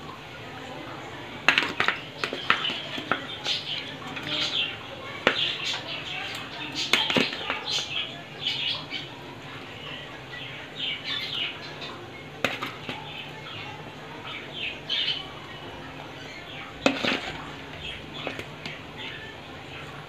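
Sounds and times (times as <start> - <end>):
curry simmering: 0.0 - 20.0
metal spatula knocking on pot: 1.5 - 3.3.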